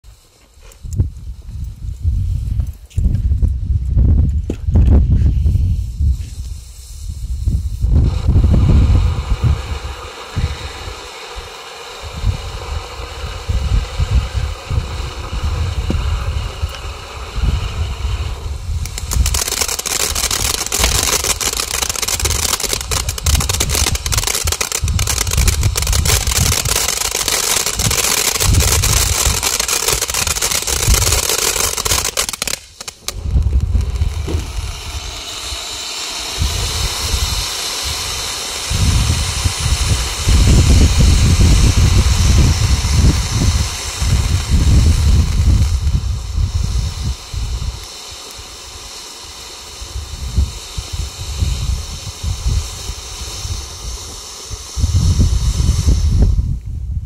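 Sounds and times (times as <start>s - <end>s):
firework fountain hissing: 0.0s - 57.0s
low rumble: 1.0s - 11.0s, 32.9s - 47.6s.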